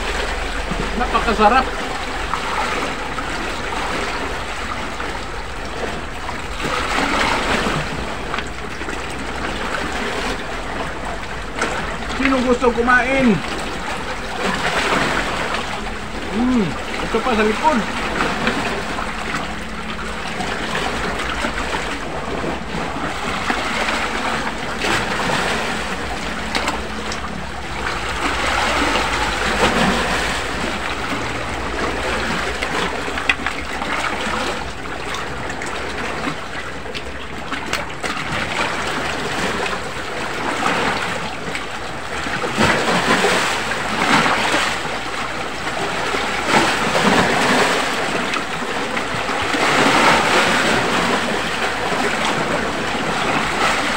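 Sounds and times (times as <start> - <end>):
sea water lapping on rocks: 0.0 - 53.9.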